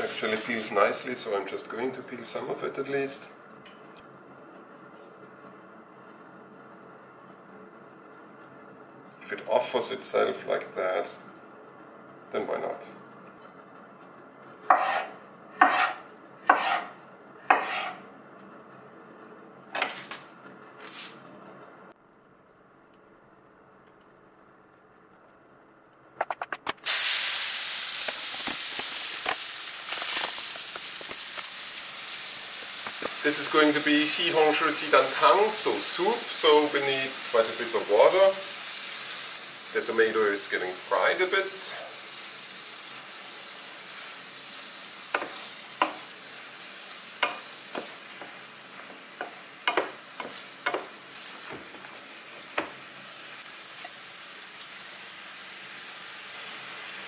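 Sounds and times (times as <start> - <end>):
crackles of frying: 22.8 - 57.0
tomato sizzling in hot oil: 26.8 - 57.0
wooden spatula knocking on pan: 45.1 - 46.0, 49.2 - 50.9.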